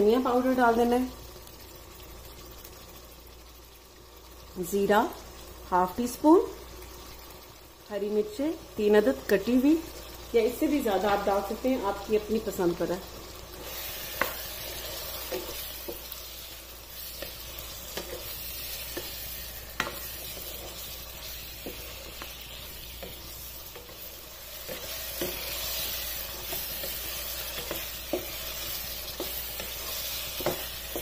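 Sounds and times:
meat sizzling in oil: 0.0s - 31.0s
spatula tapping pan: 14.1s - 16.2s, 17.0s - 31.0s.

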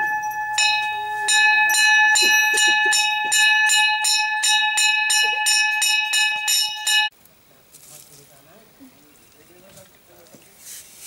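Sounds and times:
temple bell ringing rapidly: 0.0s - 7.1s.

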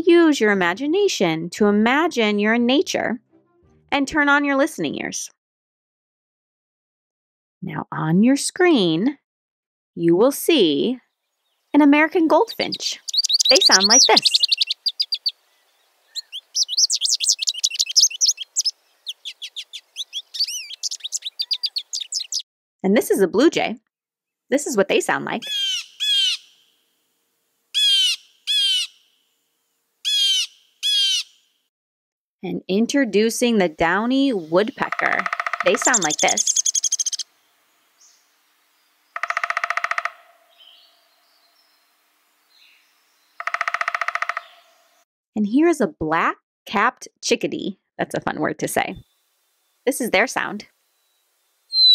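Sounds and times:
bird twittering song: 11.2s - 22.4s, 25.4s - 26.7s, 27.8s - 29.1s, 34.2s - 45.0s, 51.0s - 51.9s
woodpecker drumming: 12.5s - 22.4s, 25.4s - 26.6s, 27.8s - 29.0s, 30.1s - 31.3s, 34.6s - 37.3s, 39.1s - 41.6s, 42.7s - 45.0s.

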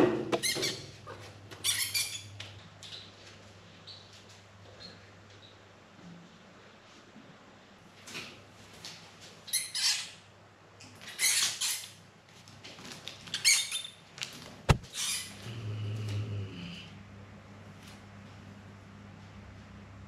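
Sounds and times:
mouse squeaking: 1.6s - 3.1s
sharp tap: 14.7s - 14.9s.

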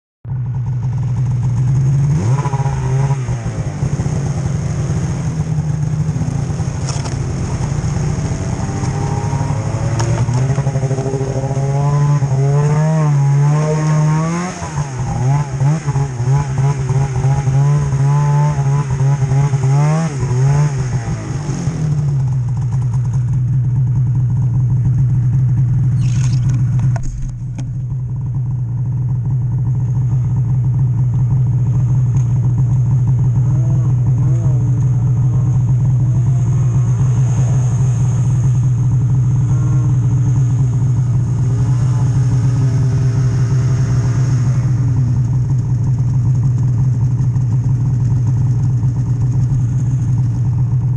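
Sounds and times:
snowmobile engine revving: 1.4s - 23.3s, 33.0s - 47.7s.

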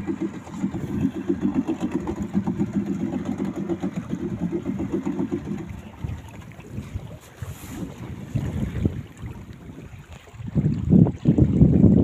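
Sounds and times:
boat engine chugging: 0.0s - 9.4s.

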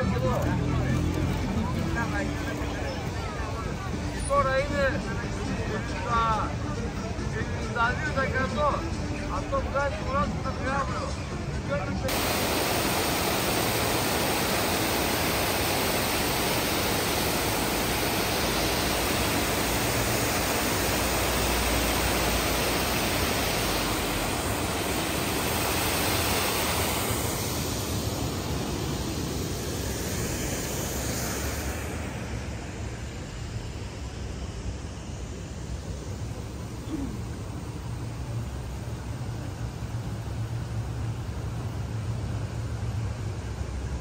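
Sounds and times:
water rushing over spillway: 12.1s - 33.4s.

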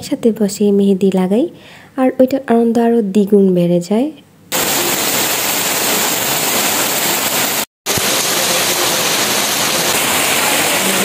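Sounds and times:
rain on leaves and ground: 4.5s - 11.0s.

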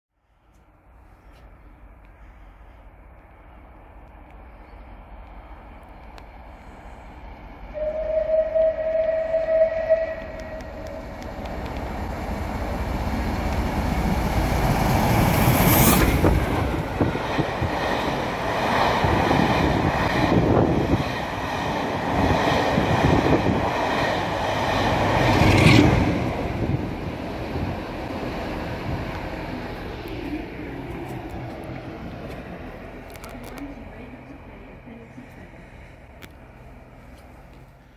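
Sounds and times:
locomotive exhaust rush: 0.3s - 37.9s
passing train rumble and rattle: 0.3s - 37.9s
steam locomotive whistle: 7.7s - 11.2s.

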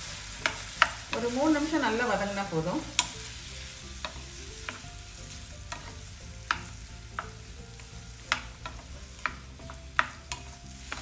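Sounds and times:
tomatoes sizzling in oil: 0.0s - 11.0s
spatula knocking against pan: 8.2s - 11.0s.

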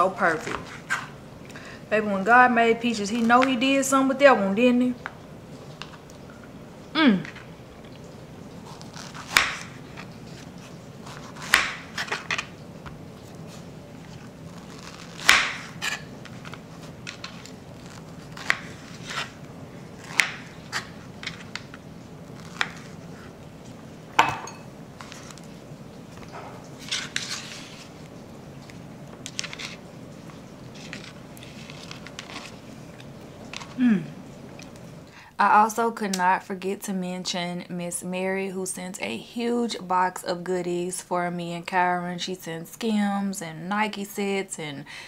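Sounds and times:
knife scraping: 13.4s - 19.4s, 26.8s - 28.0s, 29.2s - 29.8s, 30.7s - 32.6s.

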